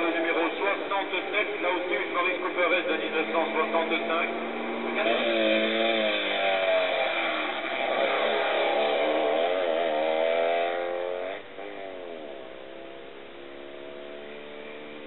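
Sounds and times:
racing car engine at high revs: 0:00.0 - 0:15.0.

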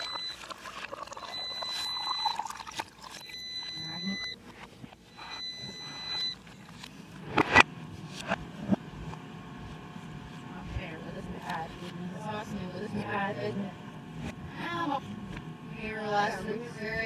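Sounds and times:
water pouring into glass: 0:00.0 - 0:03.4
electronic beeping tone: 0:00.0 - 0:04.4, 0:05.1 - 0:06.4.

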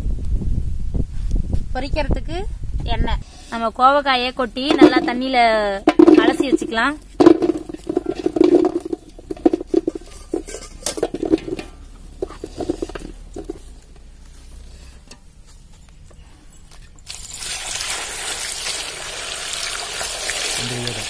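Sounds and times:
gourds knocking into metal bowl: 0:04.6 - 0:13.6
water pouring into bowl: 0:17.1 - 0:21.0.

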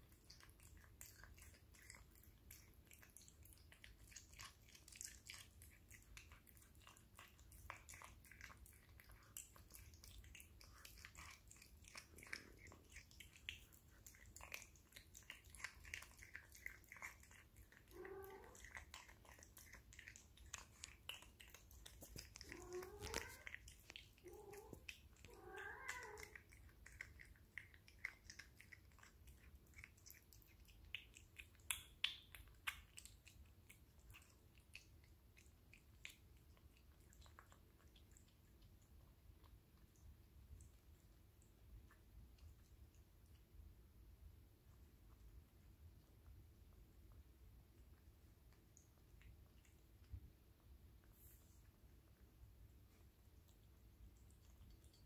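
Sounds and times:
cat chewing wetly: 0:00.0 - 0:55.0.

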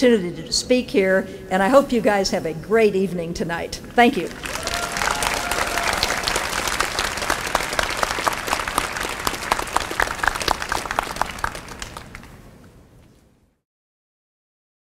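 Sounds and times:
audience applauding: 0:04.2 - 0:12.4.

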